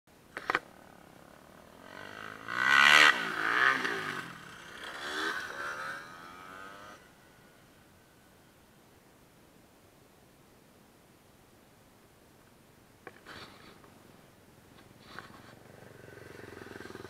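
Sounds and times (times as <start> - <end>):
motocross bike engine revving: 0.7 - 7.1, 15.1 - 17.0.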